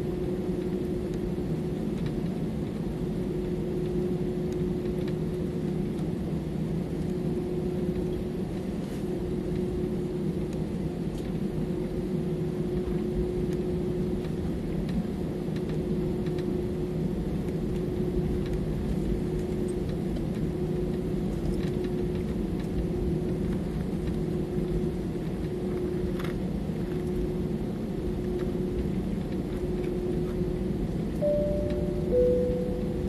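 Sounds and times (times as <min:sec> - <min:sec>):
jet engine rumble in cabin: 0:00.0 - 0:33.0
short high steady tone: 0:31.2 - 0:33.0.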